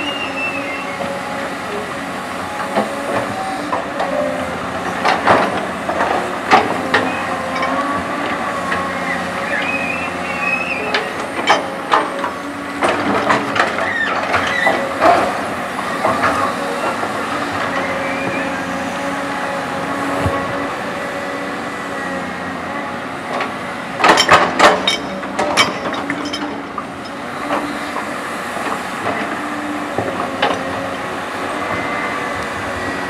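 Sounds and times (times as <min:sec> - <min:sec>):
excavator diesel engine running: 0:00.0 - 0:33.0
excavator bucket clanks: 0:03.8 - 0:08.9, 0:10.6 - 0:15.4, 0:23.4 - 0:28.0.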